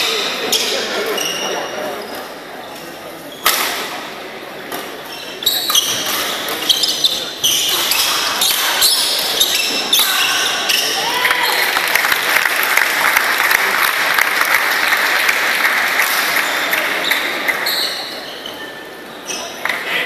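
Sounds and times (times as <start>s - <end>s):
shouts or shoe squeaks: 0.4s - 1.7s, 5.1s - 11.6s, 16.4s - 19.6s
crowd applauding and cheering: 11.0s - 17.0s.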